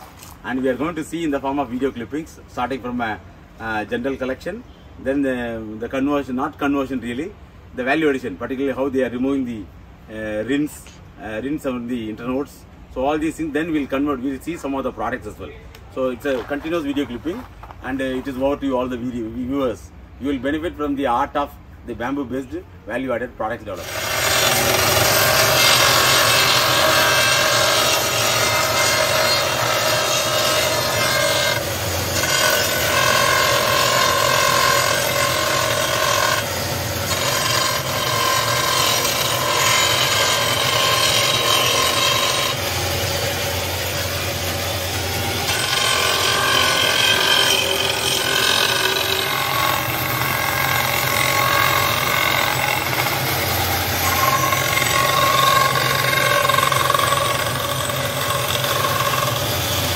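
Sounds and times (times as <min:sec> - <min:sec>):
cutter grinding bamboo: 0:23.6 - 0:59.9
electric machine running: 0:23.8 - 0:59.9.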